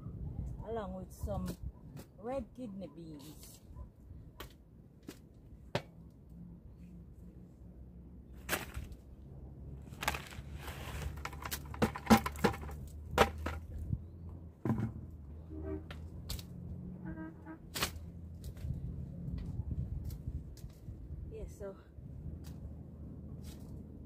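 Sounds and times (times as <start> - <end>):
hands working soil: 10.0 - 13.5
plastic bucket knocks: 11.6 - 13.6.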